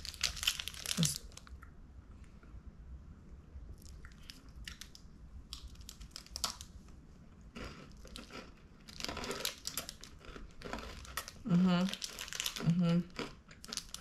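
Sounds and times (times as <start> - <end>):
foil wrapper crinkling: 0.0 - 1.5, 11.9 - 12.7, 13.6 - 14.0
chocolate bar crunching: 0.0 - 1.6, 5.5 - 6.7, 7.5 - 14.0.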